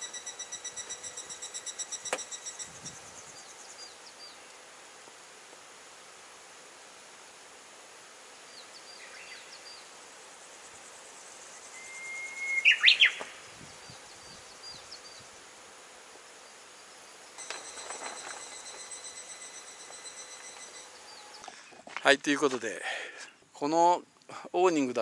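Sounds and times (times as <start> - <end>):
high pulsing buzz: 0.0 - 4.2, 17.4 - 22.0
outdoor hiss: 0.0 - 25.0
bird song whistle: 11.6 - 14.8
birds chirping: 12.1 - 15.2.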